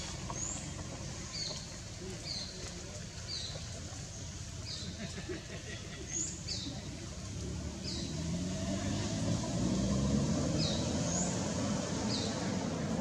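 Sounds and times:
engine droning: 7.0s - 13.0s.

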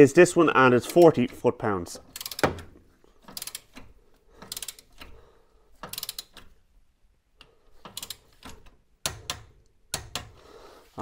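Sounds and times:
ratcheting torque wrench clicking: 2.1s - 2.6s, 3.2s - 5.2s, 5.8s - 6.6s, 7.8s - 10.4s.

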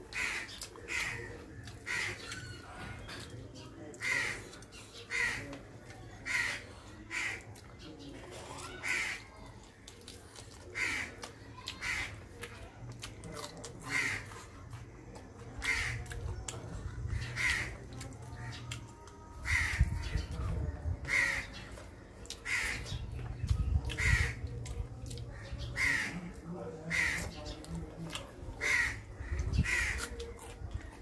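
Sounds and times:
crow cawing: 0.2s - 2.4s, 4.0s - 4.4s, 5.1s - 5.5s, 6.2s - 7.4s, 8.6s - 9.3s, 10.7s - 12.2s, 13.9s - 14.3s, 15.6s - 16.1s, 17.2s - 17.8s, 19.4s - 19.9s, 21.1s - 21.5s, 22.4s - 22.9s, 24.0s - 24.4s, 25.7s - 26.2s, 26.9s - 27.2s, 28.6s - 30.1s.

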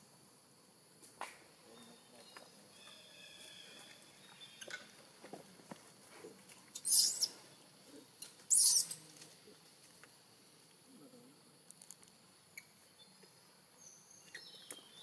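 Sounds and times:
baby monkey squealing: 6.8s - 7.4s, 8.5s - 9.0s.

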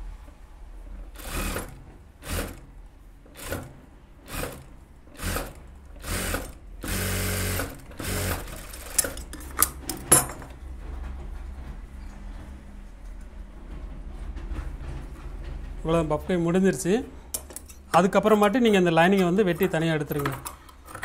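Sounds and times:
sewing machine stitching: 1.2s - 2.7s, 3.3s - 9.9s.

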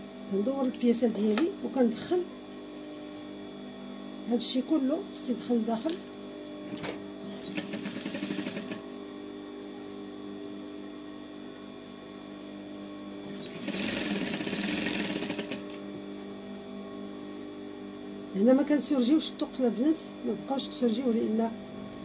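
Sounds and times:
sewing machine stitching: 6.8s - 8.8s, 13.3s - 15.8s.

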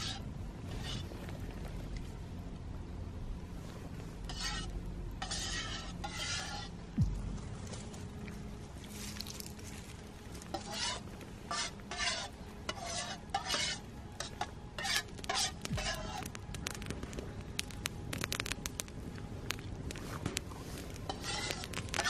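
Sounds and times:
metal spoon scraping metal mug: 4.3s - 6.7s, 10.5s - 16.2s, 21.1s - 21.6s.

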